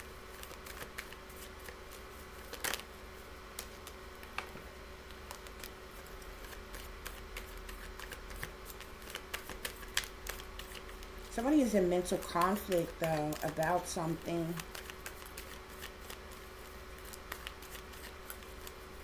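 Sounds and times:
faint hum: 0.0s - 19.0s
cards clicking and flicking: 0.4s - 1.8s, 2.4s - 2.9s, 3.5s - 18.8s.

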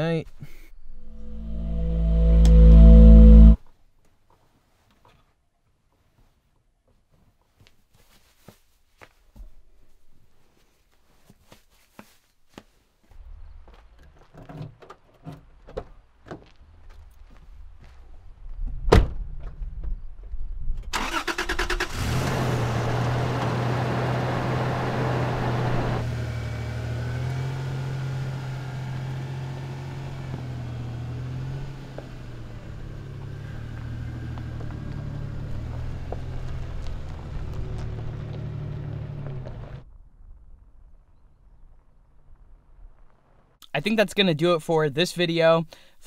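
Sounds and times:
truck engine running: 22.4s - 39.8s.

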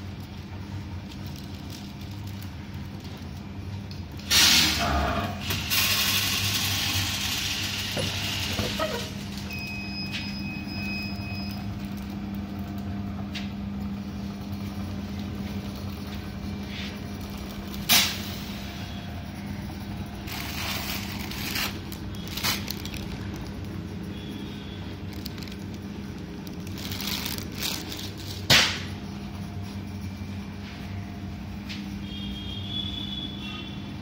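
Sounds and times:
foil pouch crinkling: 0.0s - 3.5s, 20.1s - 28.6s.

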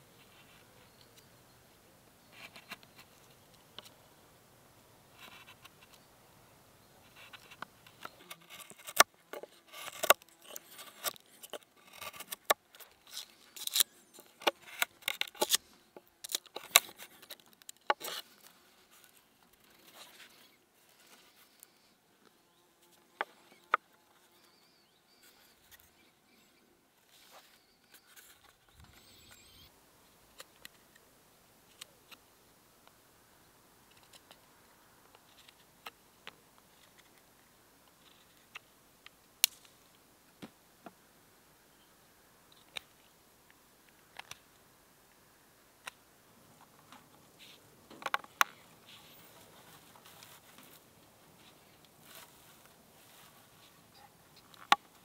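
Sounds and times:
knife cutting wood: 8.2s - 12.6s.

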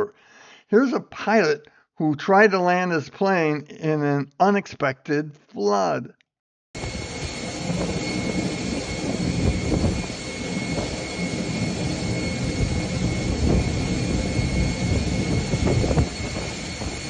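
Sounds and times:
jet engine rushing with whine: 6.8s - 17.0s.

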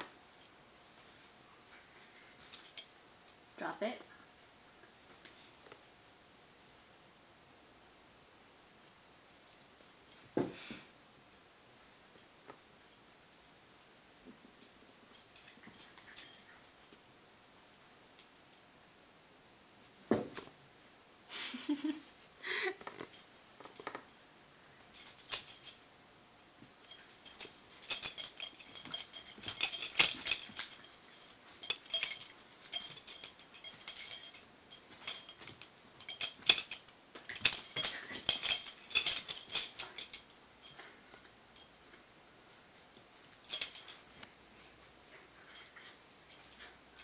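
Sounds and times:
metal tags jangling: 2.4s - 3.8s, 15.1s - 16.7s, 24.9s - 41.7s, 43.3s - 47.0s.

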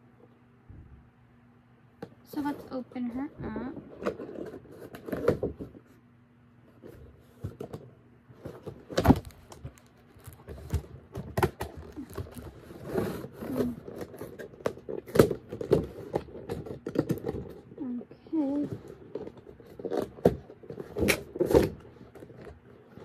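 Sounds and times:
cardboard box rustling and crinkling: 8.4s - 23.0s.

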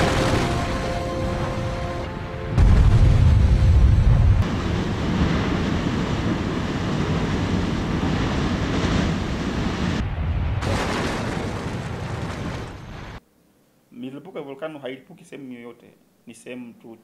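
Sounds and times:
volcano eruption rumble: 2.6s - 13.2s.

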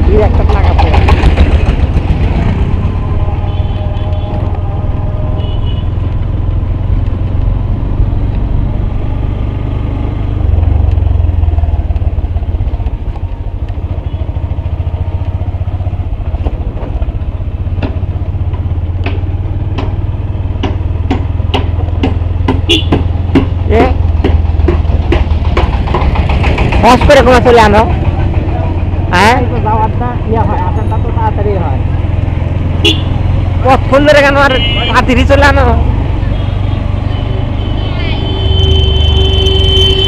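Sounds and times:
small vehicle engine running: 22.8s - 30.8s
sharp clicks or rattles: 24.1s - 27.2s.

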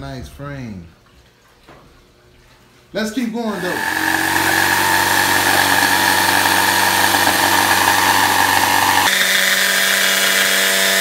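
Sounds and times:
jigsaw cutting wood: 3.6s - 11.0s.

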